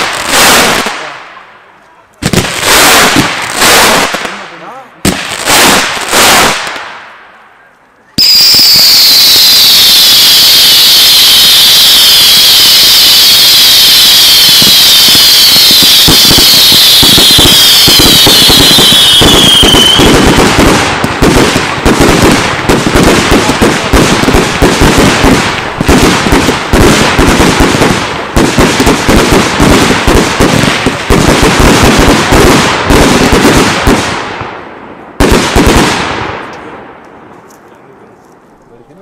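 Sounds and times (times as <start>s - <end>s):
fireworks crackling bangs: 0.0s - 7.5s, 8.2s - 38.1s
falling firework whistle: 8.2s - 20.7s.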